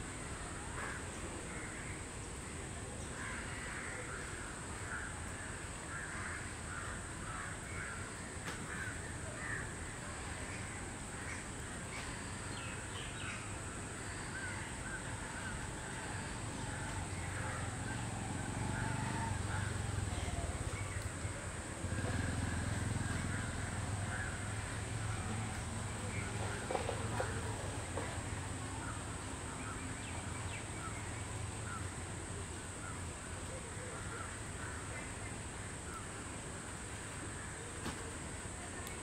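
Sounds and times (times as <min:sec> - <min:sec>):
steady high-pitched hiss: 0:00.0 - 0:39.0
birds cawing: 0:00.7 - 0:02.1, 0:03.1 - 0:10.0, 0:10.6 - 0:29.0, 0:29.6 - 0:32.0, 0:33.8 - 0:35.2.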